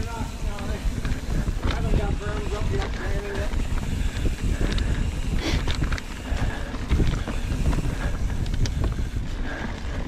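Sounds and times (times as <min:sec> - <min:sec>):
bike chain and frame rattling: 0:00.0 - 0:10.0
bike rolling on dirt trail: 0:00.0 - 0:10.0
wind buffeting microphone: 0:00.0 - 0:10.0.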